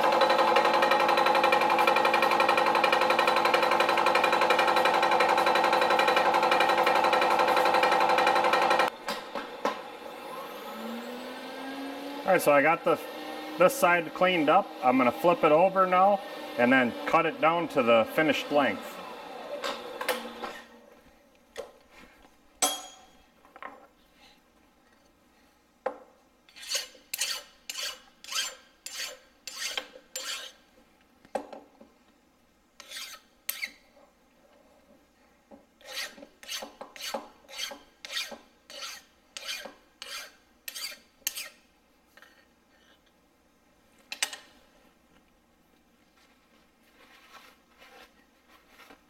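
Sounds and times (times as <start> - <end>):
hand file rasping on metal: 26.5 - 30.6, 32.8 - 33.8, 35.8 - 41.6.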